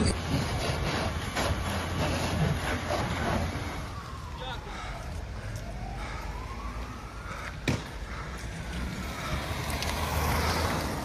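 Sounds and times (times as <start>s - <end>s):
siren wailing: 2.7s - 10.6s.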